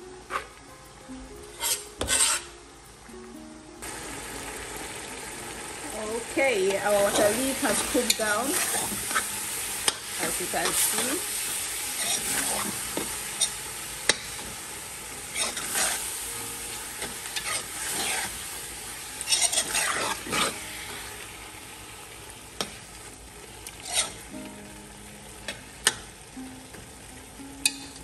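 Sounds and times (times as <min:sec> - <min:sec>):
food sizzling in pot: 0:00.0 - 0:28.0
metal spoon scraping pot: 0:01.6 - 0:02.5, 0:19.2 - 0:20.6, 0:23.8 - 0:24.2
spoon clicking on pot: 0:27.6 - 0:28.0.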